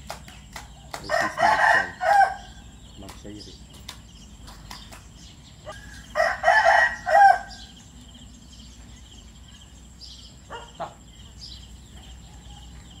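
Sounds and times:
faint bird chirps: 0.0 - 13.0
rooster crowing: 1.1 - 2.7, 5.7 - 7.8.

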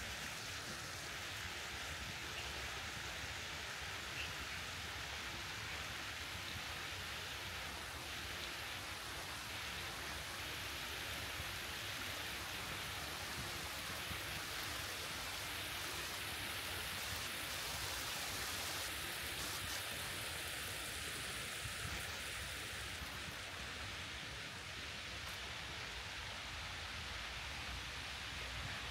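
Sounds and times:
water splashing down cascade: 5.5 - 24.2.

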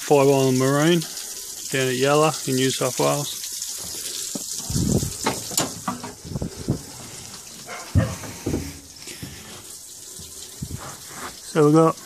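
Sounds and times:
water running: 0.0 - 12.0
dull thumps and knocks: 4.3 - 6.9, 7.8 - 9.4.

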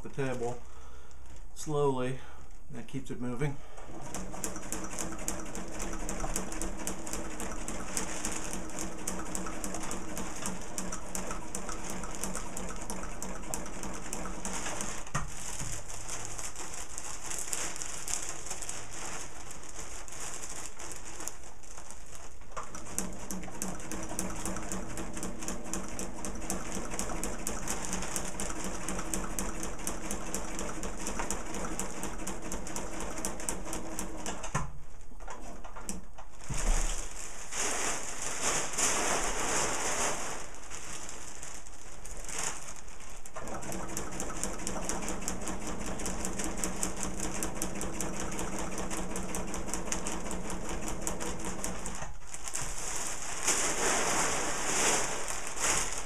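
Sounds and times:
sewing machine stitching: 3.9 - 18.6, 20.4 - 36.0, 43.2 - 52.8.

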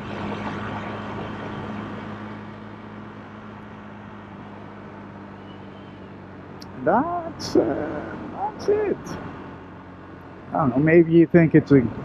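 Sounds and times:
road noise: 0.0 - 12.0
vehicle engine hum: 0.0 - 12.0.

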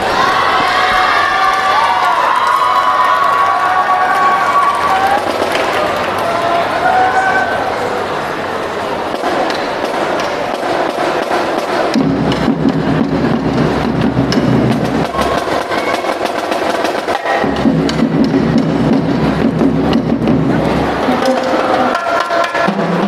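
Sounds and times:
deeper drum layer: 3.8 - 23.0
snare and tenor drums: 9.1 - 23.0.

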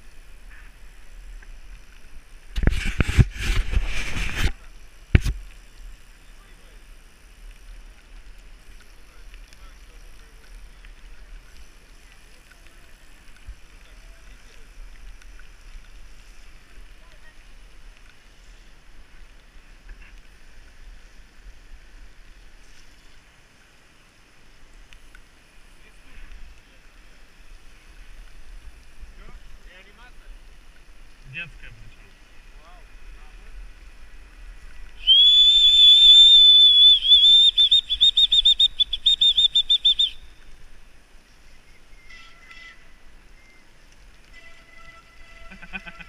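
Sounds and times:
bicycle tyres on wet asphalt: 0.0 - 46.0
whistle blasts and toots: 35.0 - 40.4, 41.7 - 43.6, 44.3 - 46.0.

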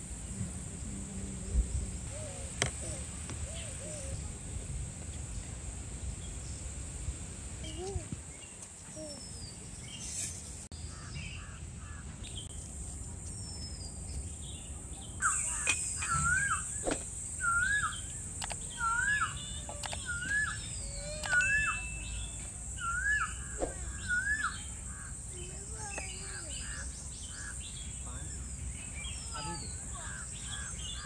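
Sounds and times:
high-pitched hiss: 0.0 - 10.7
birds chirping: 13.3 - 31.0.

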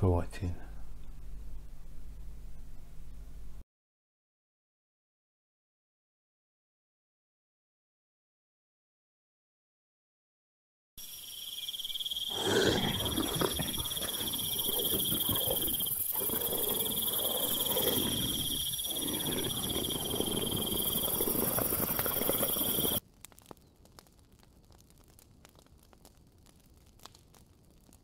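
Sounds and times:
low rumbling noise: 0.0 - 3.6
insect trilling: 11.0 - 23.0
faint crackle: 11.0 - 28.0.

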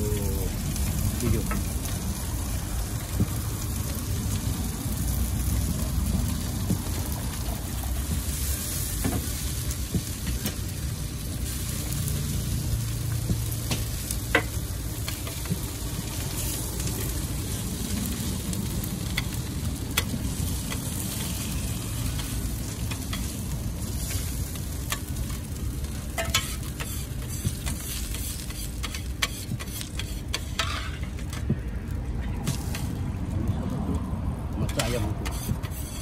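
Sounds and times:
burger patties sizzling on griddle: 0.0 - 36.0
scraper grating across steel: 26.2 - 31.1, 34.7 - 36.0.

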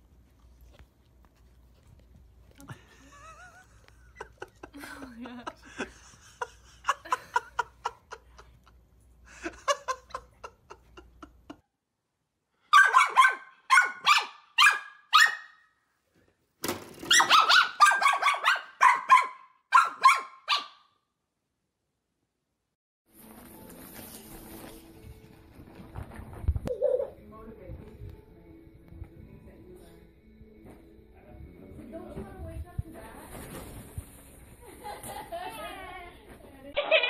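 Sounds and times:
dog yapping: 12.7 - 15.6, 17.1 - 20.9, 26.7 - 27.1, 36.8 - 37.0.

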